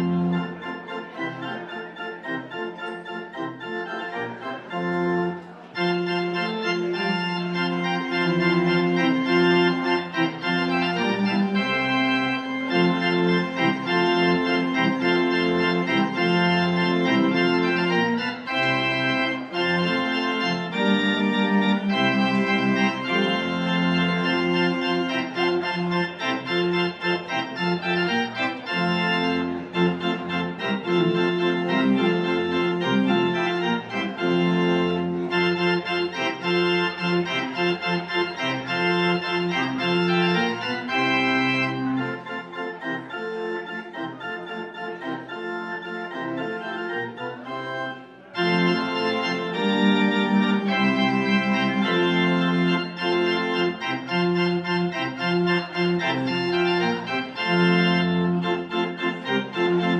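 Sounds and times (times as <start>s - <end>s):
church organ chords: 0.0s - 59.9s.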